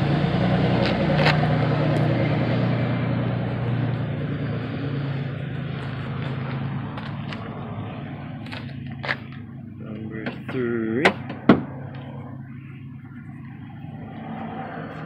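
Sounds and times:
vehicle engine passing: 0:00.0 - 0:15.0.

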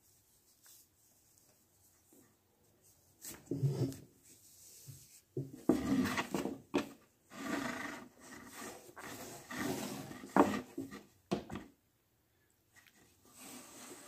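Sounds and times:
rope rubbing and sliding: 0:02.8 - 0:06.6, 0:07.3 - 0:11.1, 0:13.0 - 0:14.0.

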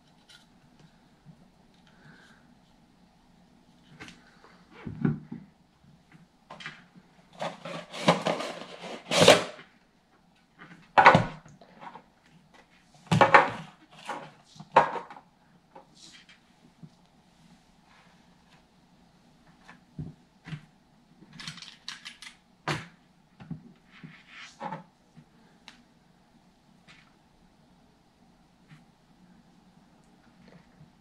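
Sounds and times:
cardboard and plastic rustling: 0:06.5 - 0:09.7.

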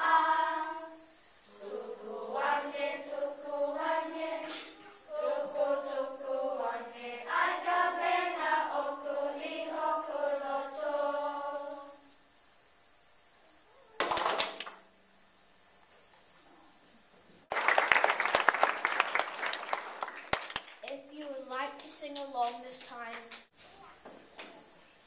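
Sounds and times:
children singing: 0:00.0 - 0:12.1
audience applauding: 0:14.0 - 0:14.8, 0:17.5 - 0:20.9.

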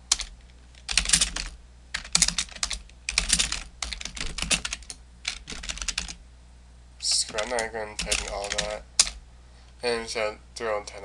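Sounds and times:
computer keyboard typing: 0:00.1 - 0:06.2, 0:07.1 - 0:09.2.

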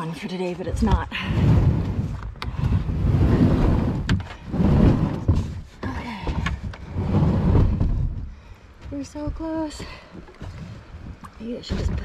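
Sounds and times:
kayak paddling rumble: 0:00.0 - 0:12.0.

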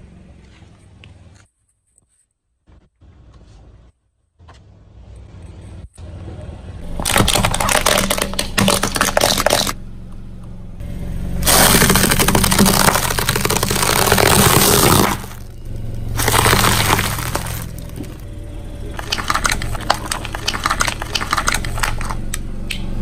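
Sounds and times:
car engine running low: 0:06.1 - 0:23.0
tyre crushing brittle objects: 0:06.8 - 0:09.8, 0:11.4 - 0:18.2, 0:18.9 - 0:22.3.

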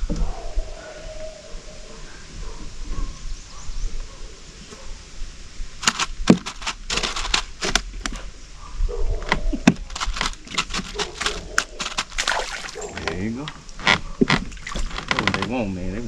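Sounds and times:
wind rumble on microphone: 0:00.0 - 0:05.8, 0:07.8 - 0:10.3.

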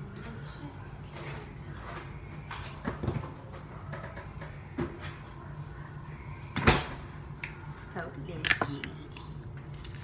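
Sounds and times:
steady low hum: 0:00.0 - 0:10.0
kitchen knocks and clatters: 0:01.1 - 0:05.2.

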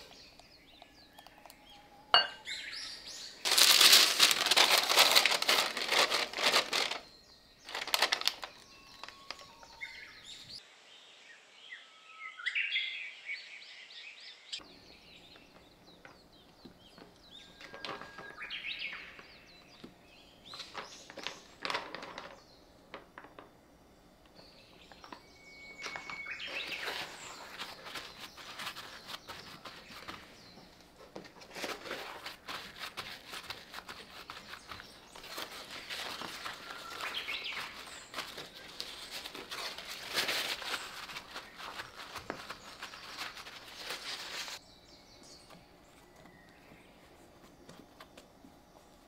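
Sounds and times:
paper towels rustling: 0:03.4 - 0:09.4, 0:26.4 - 0:44.6.

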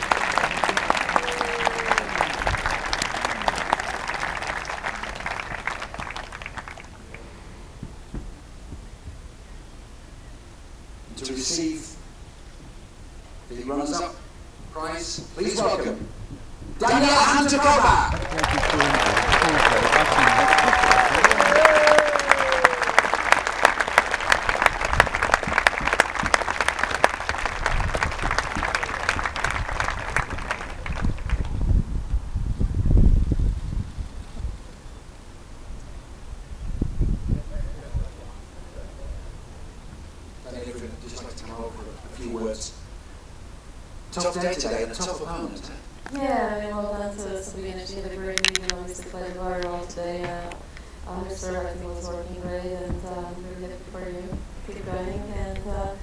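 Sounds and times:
spectators applauding: 0:00.0 - 0:07.2, 0:17.8 - 0:31.7.

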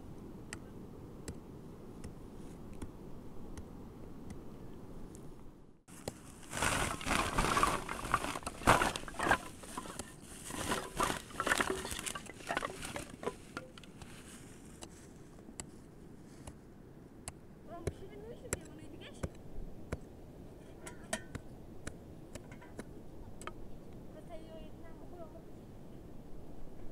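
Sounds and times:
plastic sack rustling: 0:05.9 - 0:15.2
blocks clattering onto ground: 0:06.0 - 0:14.0.

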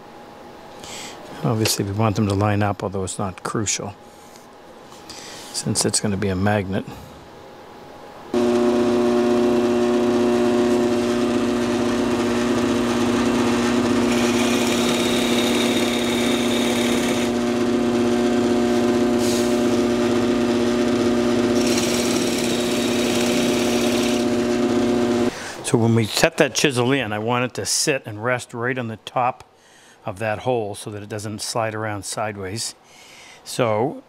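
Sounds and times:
drill bit boring into wood: 0:08.4 - 0:25.3
drill press motor humming: 0:08.4 - 0:25.3.

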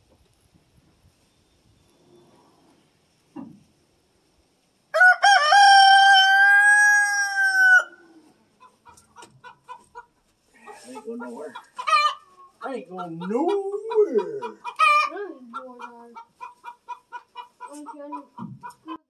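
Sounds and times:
rooster crowing: 0:04.9 - 0:08.1.

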